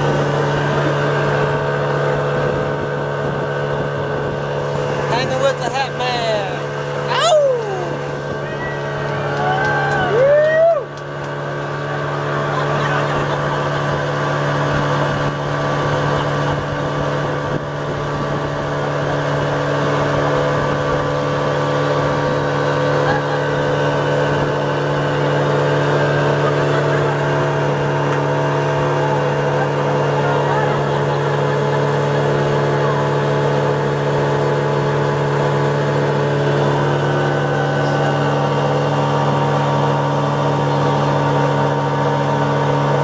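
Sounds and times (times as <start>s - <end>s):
outboard motor running: 0.0s - 43.0s
water rushing along hull: 0.0s - 43.0s
person speaking: 5.0s - 8.8s.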